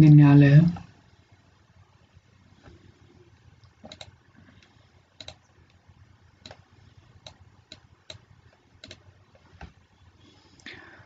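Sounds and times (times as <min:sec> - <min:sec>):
faint low hum: 0:00.0 - 0:11.0
sharp clicks: 0:03.6 - 0:04.2, 0:05.2 - 0:05.8, 0:08.8 - 0:09.0.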